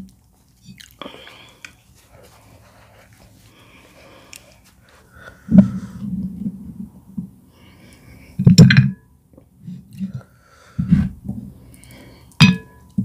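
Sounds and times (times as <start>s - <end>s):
cloth rustling: 1.3s - 5.5s.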